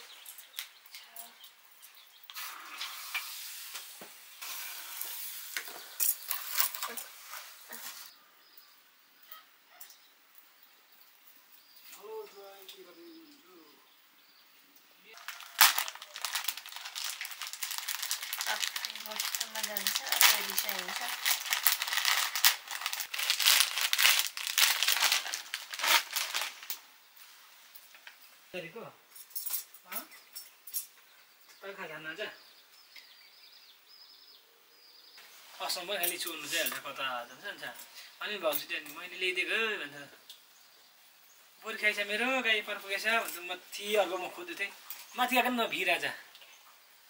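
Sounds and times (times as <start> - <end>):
food sizzling in a pan: 2.3 - 8.1
packaging crinkling: 15.2 - 26.8.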